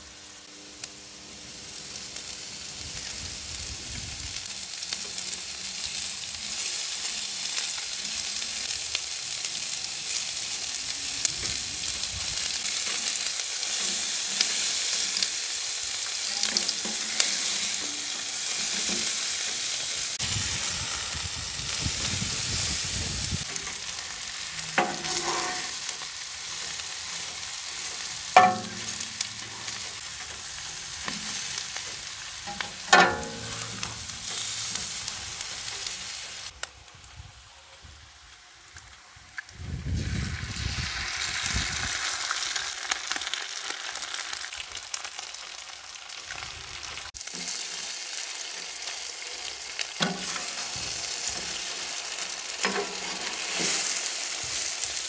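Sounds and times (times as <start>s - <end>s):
food sizzling on griddle: 0.0s - 55.0s
metal spatula scraping: 16.1s - 20.4s, 23.4s - 35.9s, 50.0s - 51.6s, 52.6s - 54.6s
ringing metallic clanks: 32.5s - 34.4s.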